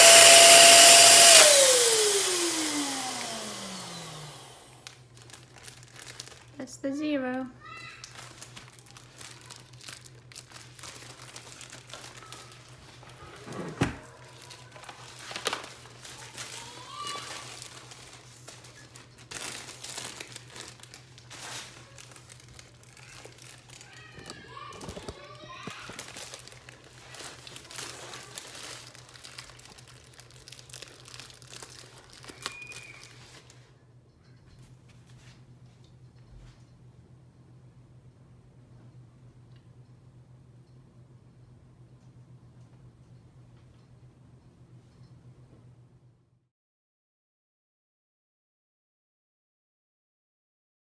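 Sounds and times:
foil balloon crinkling: 4.8s - 33.7s.

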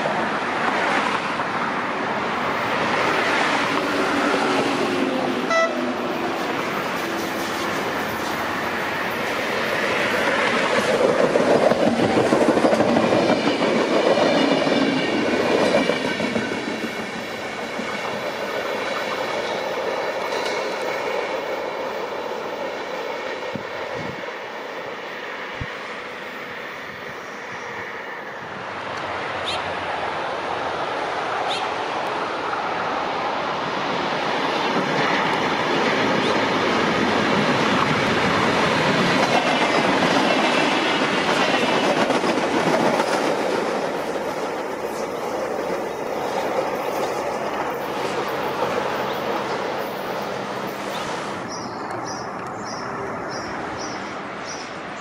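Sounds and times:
train wheels clacking over rails: 2.3s - 25.0s, 33.9s - 54.6s.

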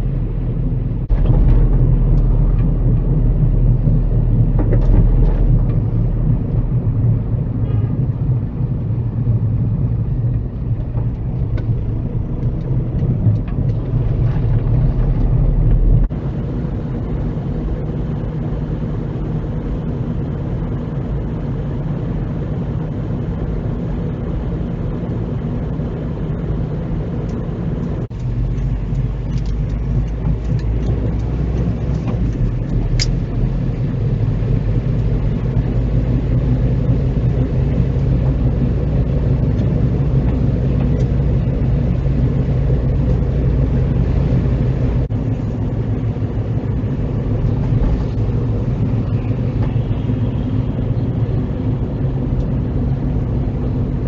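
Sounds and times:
car engine and tyre hum: 0.0s - 54.0s.

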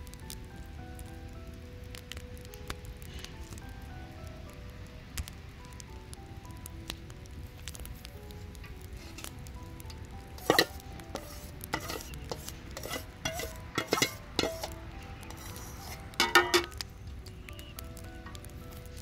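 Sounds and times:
skimmer clinking on metal pan: 10.4s - 16.8s.

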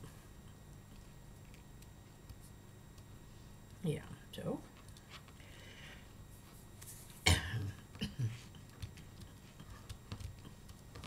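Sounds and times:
woman coughing: 7.2s - 8.4s.

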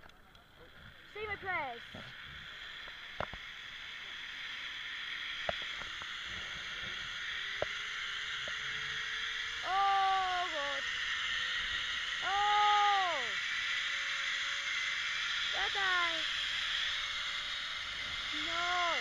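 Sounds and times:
faint whine rising in pitch: 0.6s - 19.0s
zipline trolley rushing hiss: 1.3s - 19.0s
person crying out: 9.6s - 10.6s, 12.2s - 13.4s.

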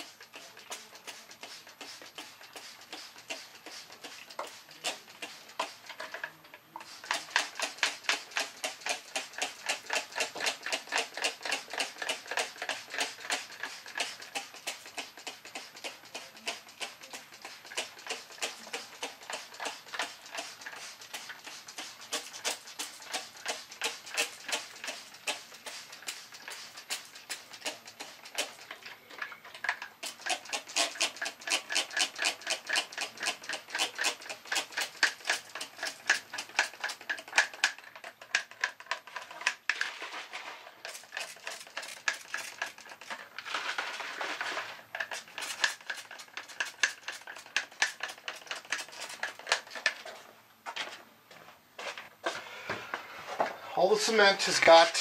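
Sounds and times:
spray bottle spritzing: 0.0s - 6.1s, 6.8s - 28.7s, 29.7s - 37.8s, 40.7s - 43.2s, 44.9s - 50.0s.

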